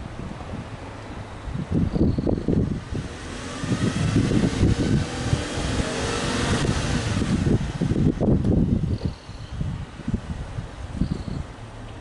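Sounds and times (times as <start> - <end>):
car engine revving: 2.5 - 8.4.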